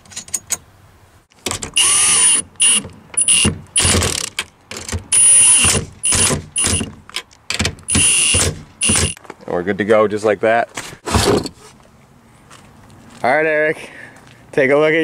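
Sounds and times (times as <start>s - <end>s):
power driver whining: 1.5s - 4.3s, 5.1s - 6.9s, 7.9s - 9.2s.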